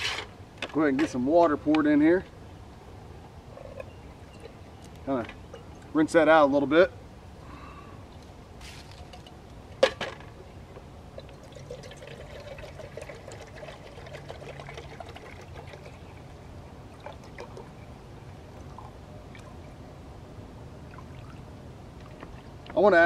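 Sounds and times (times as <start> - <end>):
water trickling into pot: 11.2 - 17.8.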